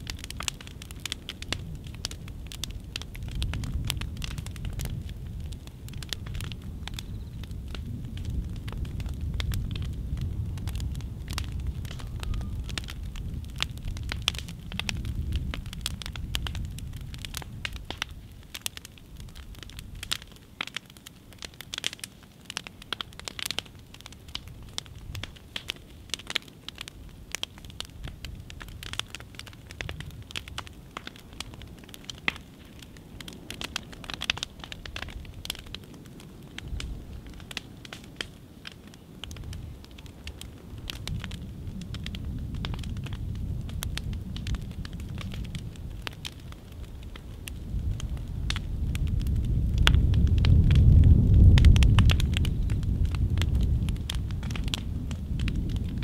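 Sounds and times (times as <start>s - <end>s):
burning wood crackling and popping: 0.0s - 56.0s
low rumble: 47.4s - 56.0s.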